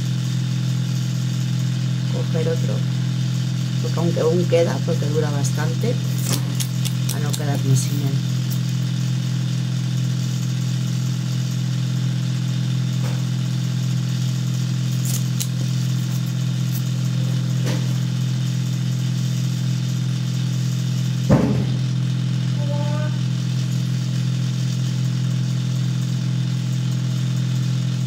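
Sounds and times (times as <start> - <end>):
low mechanical hum: 0.0 - 28.0
short sharp knock: 21.3 - 21.8.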